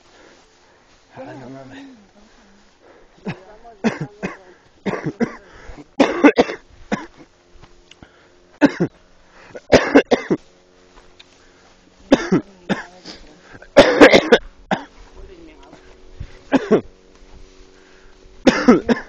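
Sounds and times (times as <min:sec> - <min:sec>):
person coughing: 0:03.2 - 0:07.3, 0:08.6 - 0:10.4, 0:12.1 - 0:12.9, 0:13.7 - 0:14.9, 0:16.5 - 0:16.9, 0:18.4 - 0:19.0.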